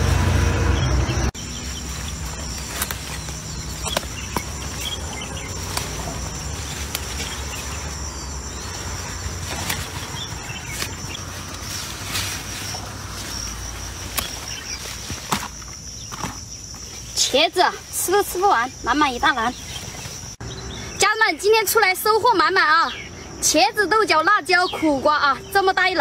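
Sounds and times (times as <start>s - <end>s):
loud low rumble: 0.0s - 14.1s
insects chirring: 0.1s - 26.0s
leaves rustling: 1.3s - 20.4s.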